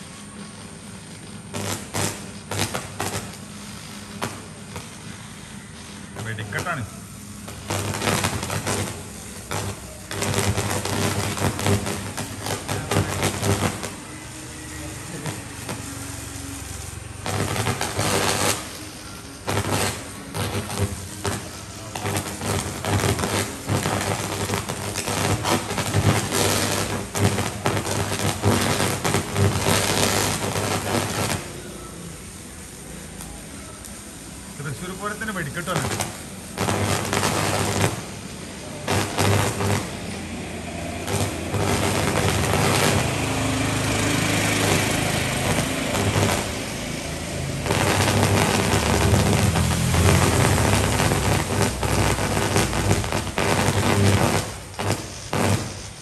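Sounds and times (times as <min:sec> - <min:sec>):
electrical arc sizzling crackle: 0:00.0 - 0:56.0
sharp arc cracks: 0:01.4 - 0:32.2, 0:33.0 - 0:56.0.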